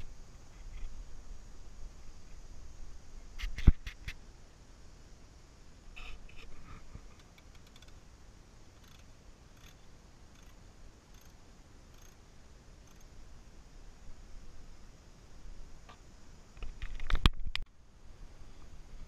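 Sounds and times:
ratchet wrench clicking: 0:09.6 - 0:09.8, 0:10.4 - 0:11.3, 0:11.9 - 0:12.2.

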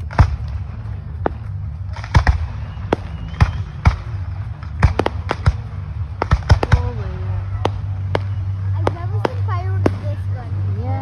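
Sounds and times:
low steady rumble: 0:00.0 - 0:11.0.

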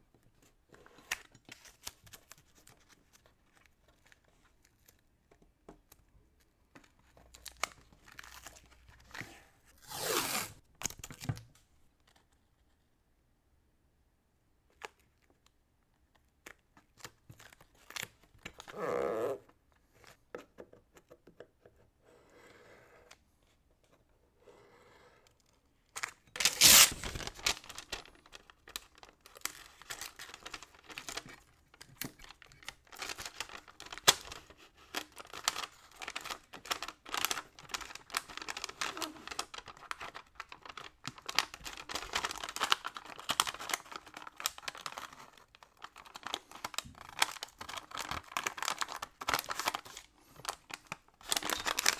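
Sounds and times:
paper crinkling and rustling: 0:00.7 - 0:05.1, 0:25.9 - 0:51.9
tape ripping: 0:09.8 - 0:10.6, 0:26.4 - 0:28.2
masking tape being pressed down: 0:26.4 - 0:27.2.

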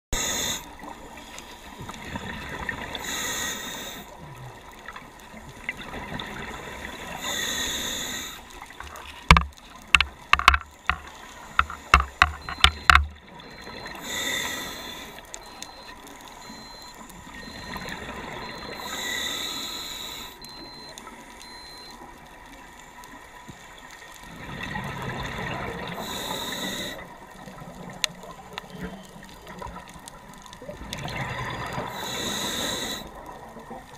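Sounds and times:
regulator hissing inhale: 0:00.2 - 0:01.6, 0:03.0 - 0:04.2, 0:07.1 - 0:08.5, 0:13.9 - 0:15.3, 0:18.7 - 0:20.6, 0:26.0 - 0:27.0, 0:31.9 - 0:33.2
sharp clicks and knocks: 0:08.8 - 0:13.2.

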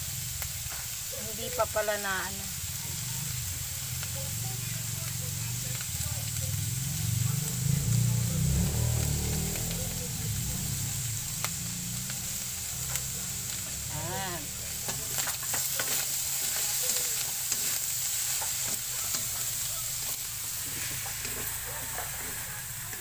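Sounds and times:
food sizzling in a pan: 0:00.0 - 0:23.0
wooden spatula scraping a pan: 0:14.8 - 0:23.0.

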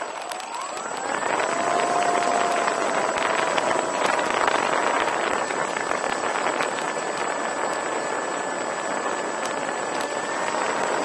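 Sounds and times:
steady rushing noise: 0:00.0 - 0:11.0
thin motor whine: 0:00.0 - 0:11.0.

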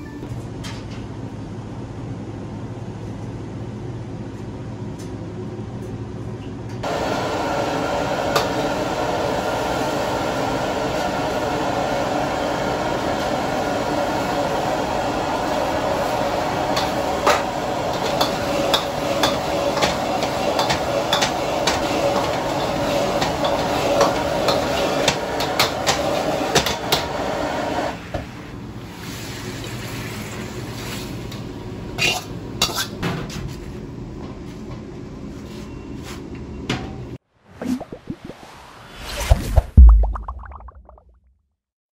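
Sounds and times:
rushing kitchen noise: 0:06.8 - 0:31.3.

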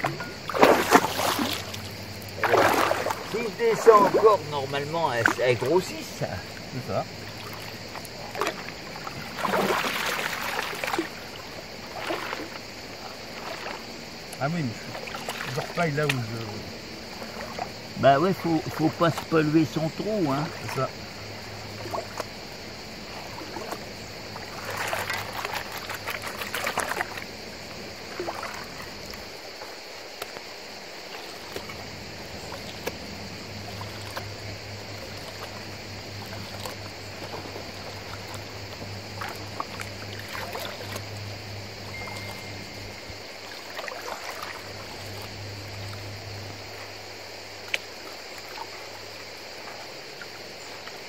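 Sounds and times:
water sloshing and splashing: 0:00.0 - 0:51.0
low hum: 0:32.4 - 0:43.2.

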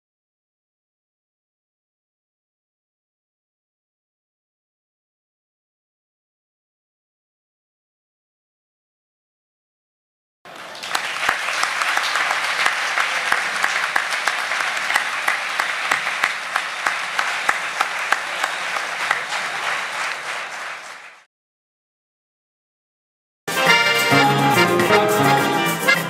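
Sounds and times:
audience applauding: 0:10.5 - 0:21.3, 0:23.5 - 0:26.0.

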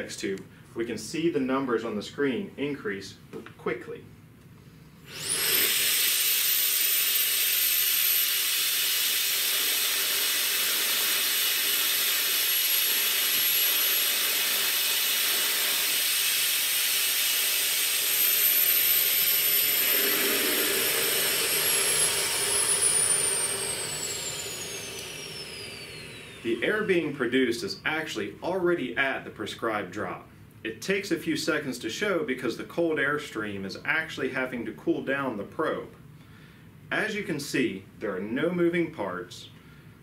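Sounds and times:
vortex tube rushing hiss: 0:14.8 - 0:26.6
high whistle: 0:18.2 - 0:26.3.

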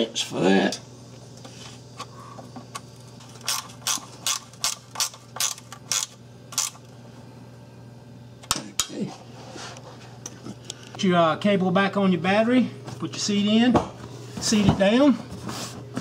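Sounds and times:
ratcheting wrench clicking: 0:03.4 - 0:06.8.

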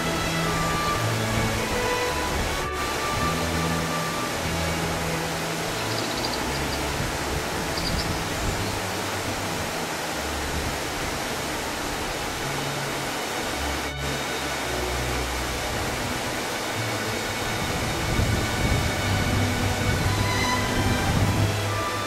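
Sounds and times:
soft background music: 0:00.0 - 0:22.0
steady rushing noise: 0:00.0 - 0:22.0
faint high chirps: 0:05.8 - 0:06.8, 0:07.8 - 0:08.2.

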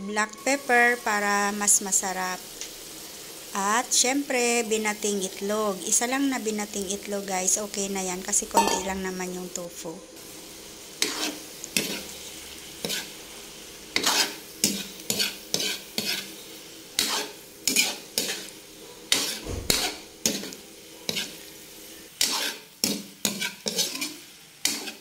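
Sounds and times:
frying sizzle: 0:00.0 - 0:25.0
metal spatula scraping pan: 0:11.0 - 0:12.2, 0:12.8 - 0:13.2, 0:13.9 - 0:18.5, 0:19.1 - 0:21.4, 0:22.0 - 0:25.0.

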